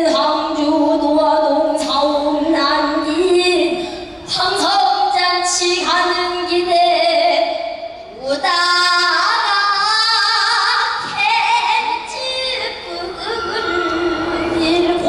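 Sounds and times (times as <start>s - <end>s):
woman singing long wavering notes: 11.3s - 15.0s.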